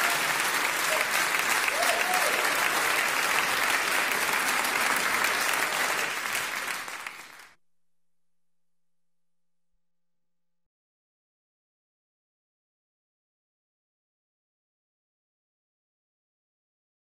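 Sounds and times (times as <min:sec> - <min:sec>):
crowd applauding: 0:00.0 - 0:07.6.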